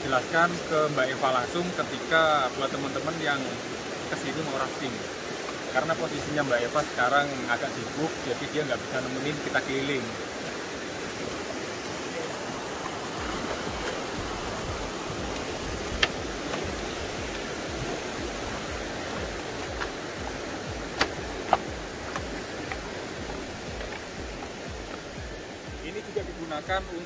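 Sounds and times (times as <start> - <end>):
river flowing over rapids: 0.0 - 27.0.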